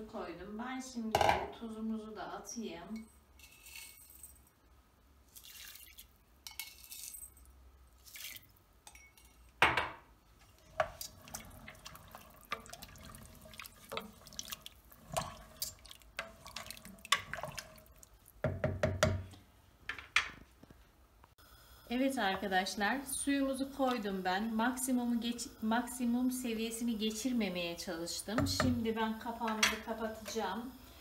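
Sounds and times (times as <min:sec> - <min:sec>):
liquid sloshing in pot: 0:05.3 - 0:06.2, 0:08.0 - 0:09.1, 0:10.4 - 0:18.4
spoon knocking against pot: 0:18.4 - 0:19.4, 0:28.4 - 0:28.8.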